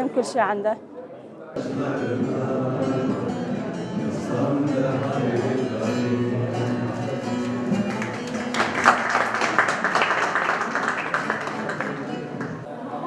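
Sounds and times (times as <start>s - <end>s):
plucked string instrument: 1.6s - 9.0s.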